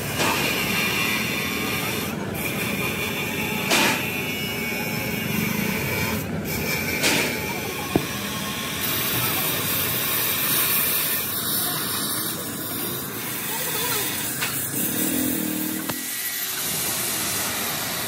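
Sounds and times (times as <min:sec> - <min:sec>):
hissing machine noise: 0:06.9 - 0:18.0.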